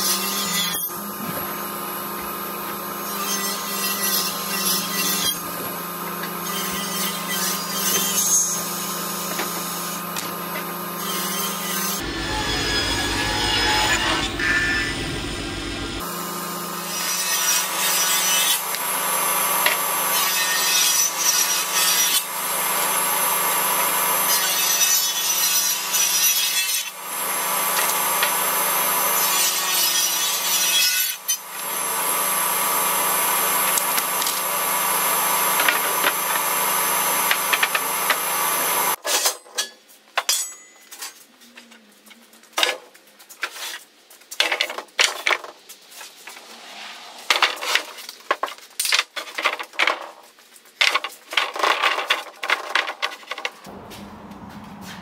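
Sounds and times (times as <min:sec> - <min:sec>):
table saw cutting wood: 0:00.0 - 0:39.0.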